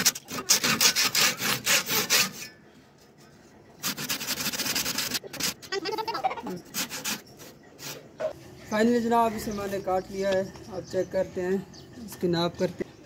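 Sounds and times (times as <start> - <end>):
hand saw cutting wood: 0.0 - 2.5, 3.8 - 5.7, 6.6 - 8.0.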